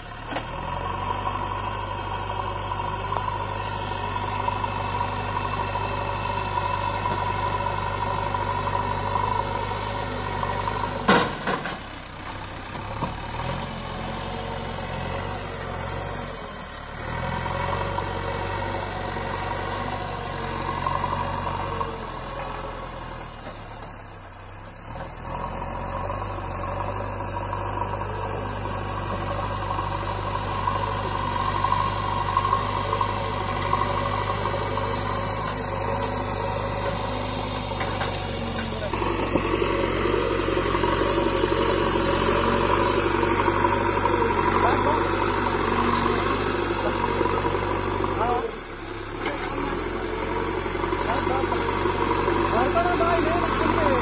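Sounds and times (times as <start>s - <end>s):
diesel engine running: 0.0s - 54.0s.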